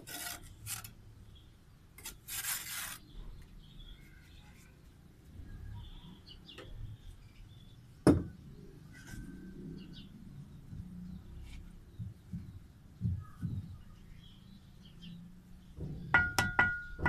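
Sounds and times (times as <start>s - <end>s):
faint bird chirps: 3.0s - 15.3s
knocks of bricks: 15.8s - 17.0s.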